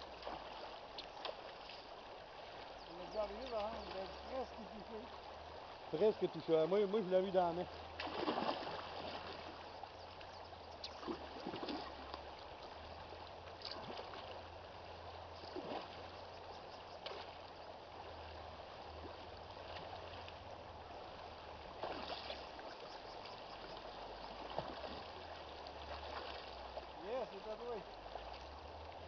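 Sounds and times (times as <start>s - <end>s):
river running over stones: 0.0s - 29.0s
fish splashing: 7.8s - 9.6s, 10.9s - 12.6s, 21.7s - 22.7s.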